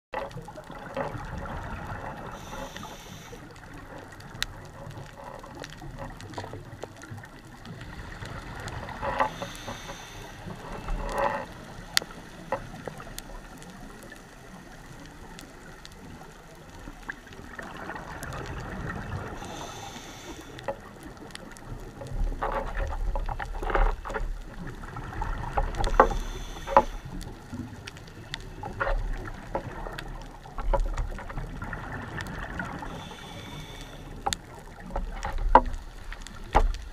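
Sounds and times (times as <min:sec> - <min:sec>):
faint clicking and crackling: 0:00.1 - 0:36.9
regulator hissing inhalation: 0:02.4 - 0:03.4, 0:09.3 - 0:10.5, 0:19.4 - 0:20.6, 0:32.9 - 0:34.2.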